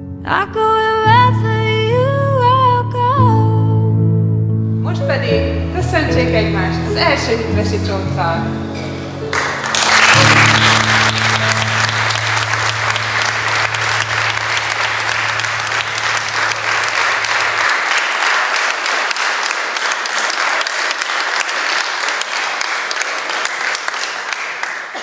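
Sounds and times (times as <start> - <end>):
crowd clapping: 9.2 - 25.0
music with low held notes: 10.1 - 17.4.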